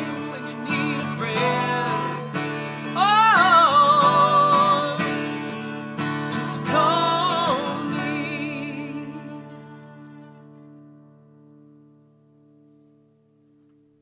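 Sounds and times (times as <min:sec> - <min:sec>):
man singing: 0:00.0 - 0:05.6, 0:06.2 - 0:09.8
violin: 0:00.0 - 0:12.0
strummed acoustic guitar: 0:00.0 - 0:14.0.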